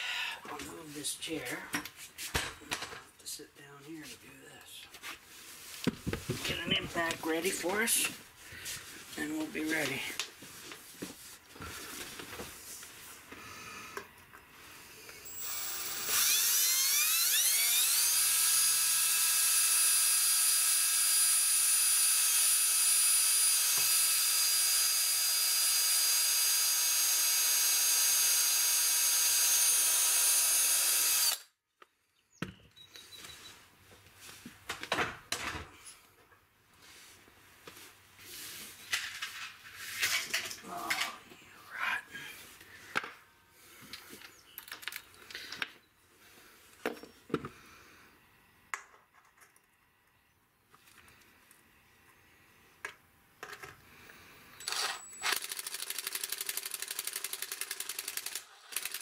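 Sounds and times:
cordless drill boring metal: 15.2 - 31.5, 54.6 - 59.0.

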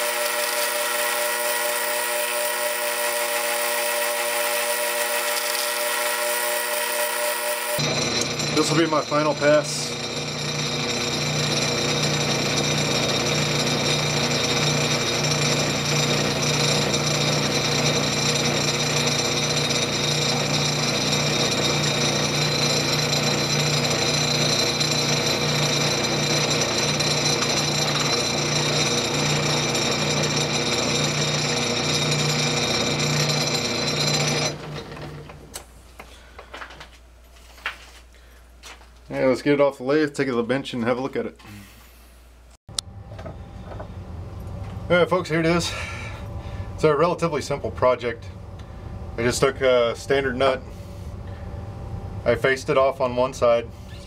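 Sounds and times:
metal lathe running: 0.0 - 35.4.

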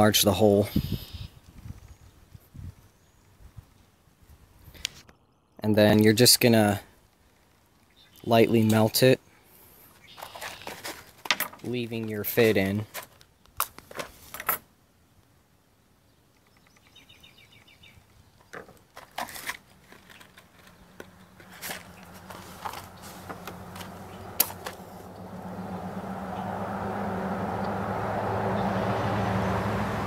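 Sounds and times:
vehicle engine hum: 18.4 - 30.0.

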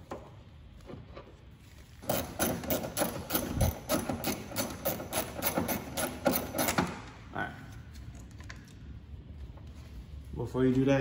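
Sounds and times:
hand ratchet clicking: 2.0 - 7.0.

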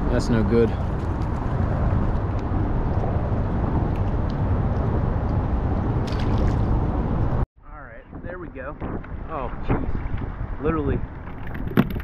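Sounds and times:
wind buffeting microphone: 0.0 - 7.4, 8.0 - 12.0.

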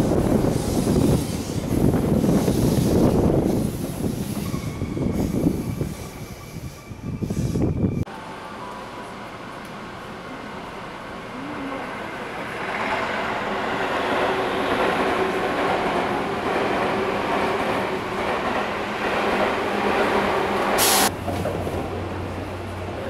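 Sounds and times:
train rumble and rail noise: 0.0 - 23.0.

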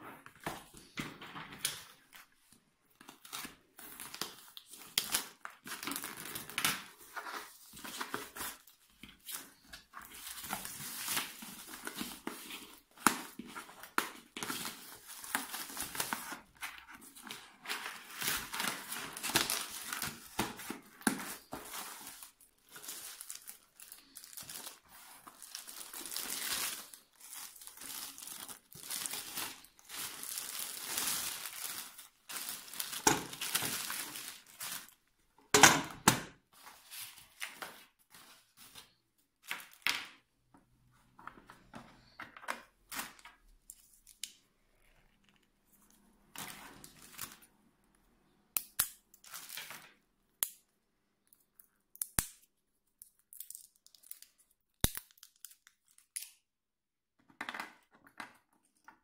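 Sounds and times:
plastic wrapping crinkling: 1.7 - 35.1
cardboard packaging handled: 3.2 - 35.0.

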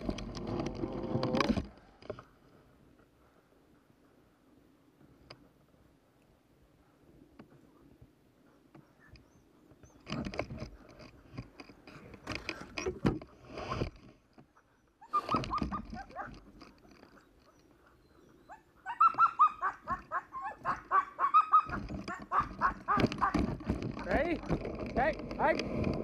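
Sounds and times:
dogs barking and yelping: 14.4 - 24.6
high yips: 18.5 - 23.3.

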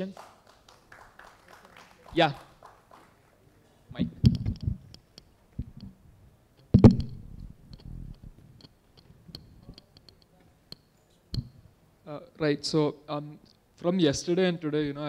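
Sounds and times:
microphone handling thumps: 4.0 - 4.9, 6.7 - 8.6.

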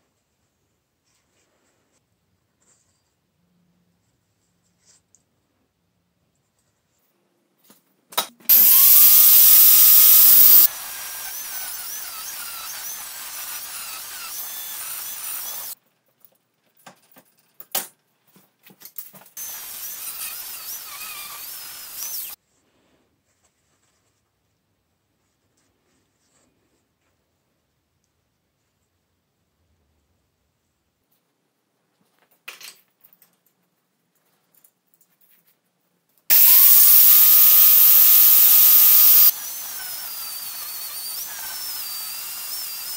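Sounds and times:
power tool whining on steel: 8.5 - 15.8, 19.4 - 22.4, 36.3 - 42.9.

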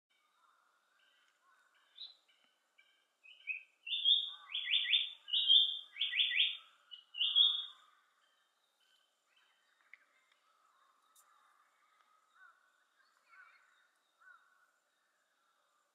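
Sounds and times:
bird singing whistled notes: 1.0 - 10.1.

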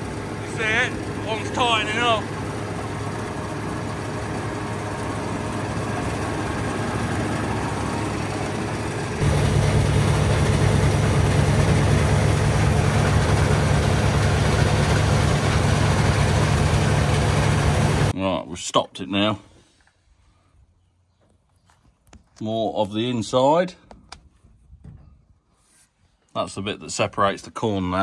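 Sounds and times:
combine harvester running: 0.0 - 18.1
heavy low hum: 0.0 - 18.1.

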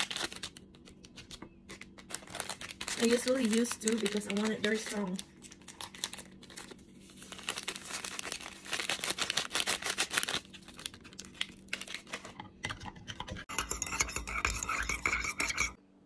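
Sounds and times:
foil sachet crinkling: 0.0 - 12.4
spoon stirring in ceramic mug: 12.3 - 15.8.

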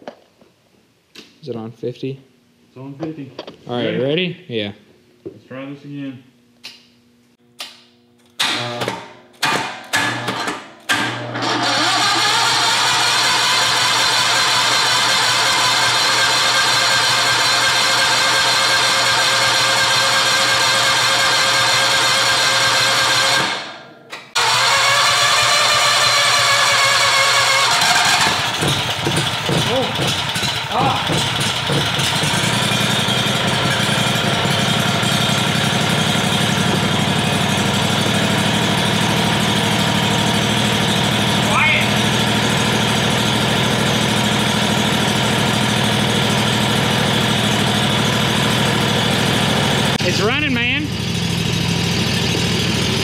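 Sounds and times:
engine electric starter cranking: 8.3 - 41.4
engine running without exhaust: 24.4 - 53.0.

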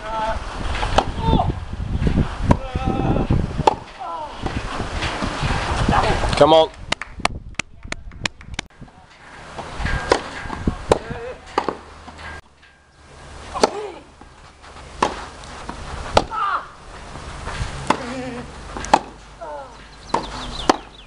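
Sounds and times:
tennis racket hitting ball: 0.8 - 1.2, 3.6 - 5.4, 9.2 - 12.4, 13.4 - 17.2, 17.8 - 19.3, 20.1 - 21.0
players grunting: 17.8 - 19.8.

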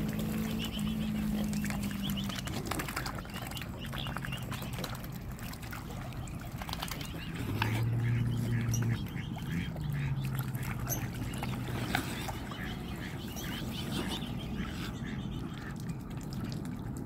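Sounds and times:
swan calls: 0.0 - 5.1, 6.1 - 15.8
bills dabbling at water: 0.0 - 17.0
small water splashes: 0.0 - 17.0.

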